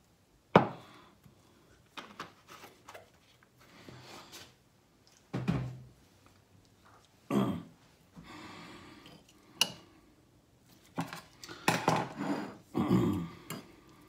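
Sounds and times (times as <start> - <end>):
dishes and utensils clinking: 11.0 - 12.6.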